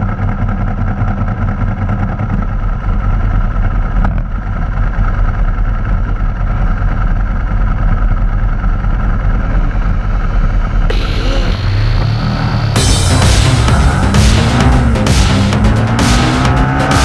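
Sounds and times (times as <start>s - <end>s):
motorcycle engines idling: 0.0s - 17.0s
loud music: 10.9s - 17.0s.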